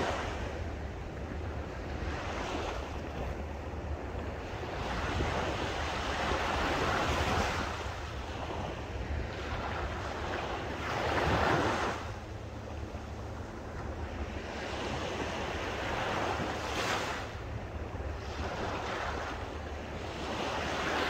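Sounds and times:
waves breaking on sandy beach: 0.0s - 21.0s.

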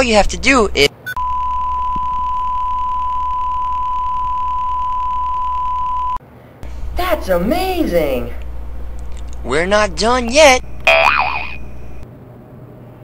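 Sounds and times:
steady test tone beep: 1.1s - 6.2s.

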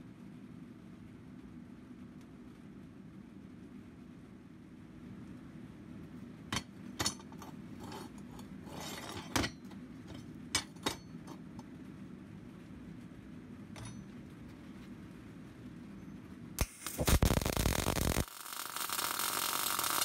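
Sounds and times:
steady low hum: 0.0s - 20.0s
metal scraping on metal: 7.0s - 11.4s.

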